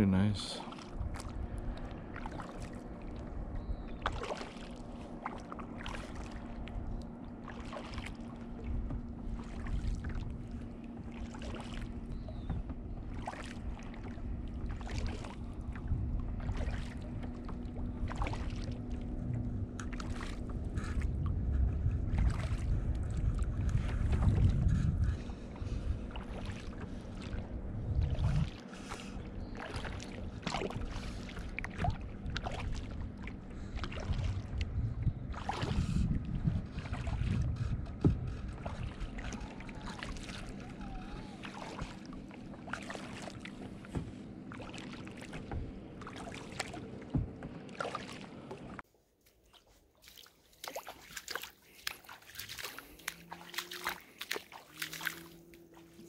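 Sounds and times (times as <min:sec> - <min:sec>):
steady low hum: 0:00.0 - 0:48.8
paddle strokes splashing: 0:00.6 - 0:56.0
wind buffeting microphone: 0:08.5 - 0:28.6, 0:29.2 - 0:42.0
faint water drips: 0:49.6 - 0:56.0.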